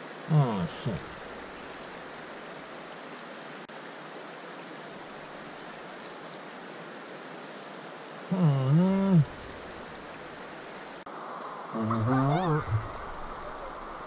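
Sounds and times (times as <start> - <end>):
creek water flowing: 0.0 - 14.0
man's low vocal sound: 8.3 - 9.4.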